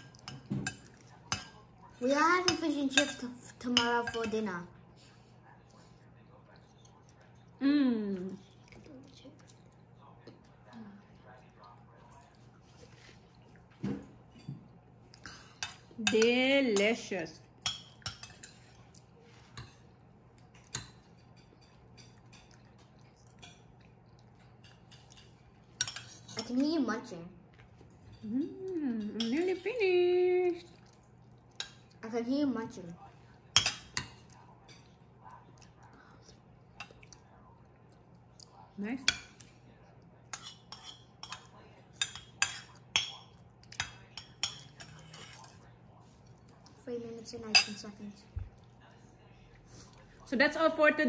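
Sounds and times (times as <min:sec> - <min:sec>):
low room hum: 0:00.0 - 0:51.0
spoon clinking against dish: 0:00.1 - 0:01.6, 0:33.5 - 0:34.9, 0:40.3 - 0:45.5.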